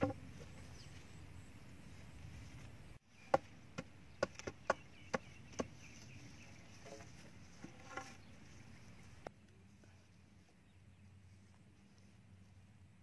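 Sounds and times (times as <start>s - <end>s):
bamboo poles knocking: 0.0s - 0.3s, 3.3s - 5.8s.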